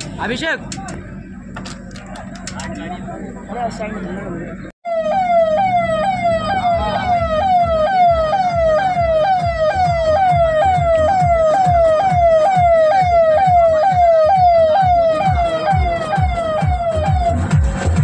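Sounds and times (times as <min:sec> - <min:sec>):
electronic siren yelping: 0:04.9 - 0:17.6.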